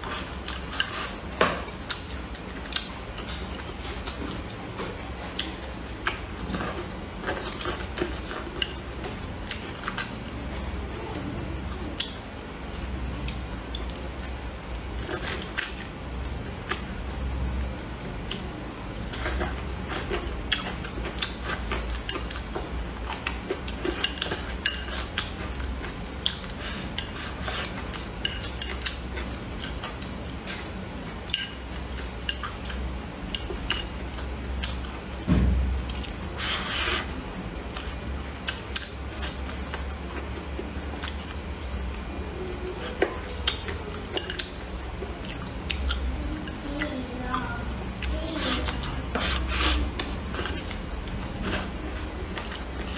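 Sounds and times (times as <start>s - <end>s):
chewing and eating: 0.0s - 52.9s.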